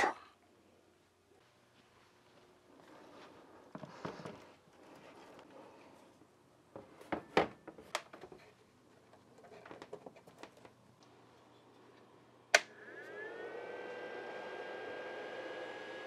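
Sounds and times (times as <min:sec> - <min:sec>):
cooling fans whirring: 0:10.3 - 0:16.0
power switch click: 0:12.5 - 0:12.7.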